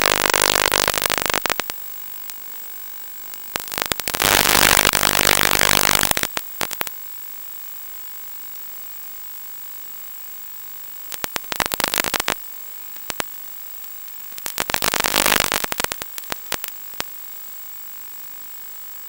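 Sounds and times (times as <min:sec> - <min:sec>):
loud radio crackling: 0:00.0 - 0:01.8, 0:03.4 - 0:06.9, 0:11.1 - 0:13.4, 0:14.2 - 0:17.1
radio static hiss: 0:00.0 - 0:07.0, 0:10.9 - 0:19.0.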